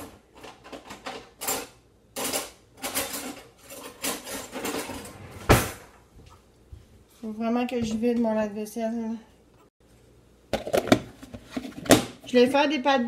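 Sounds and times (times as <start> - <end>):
kitchen scraping and clattering: 0.0 - 6.1.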